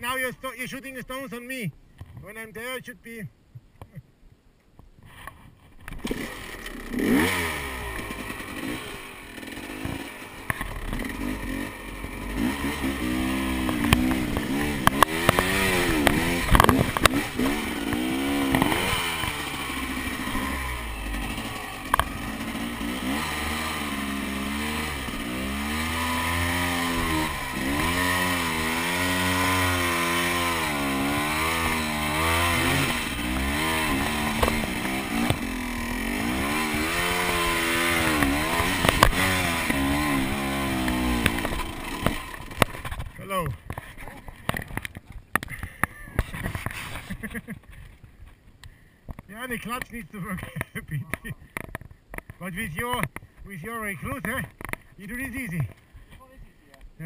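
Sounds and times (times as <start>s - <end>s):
motorcycle engine revving: 5.9s - 47.6s
sharp knocks: 32.6s - 35.5s.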